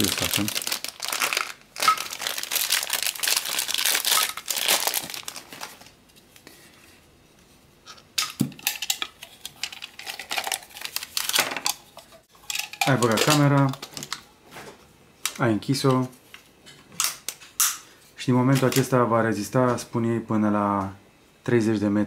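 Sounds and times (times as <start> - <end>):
plastic bag crinkling: 0.0 - 6.0, 9.6 - 11.8.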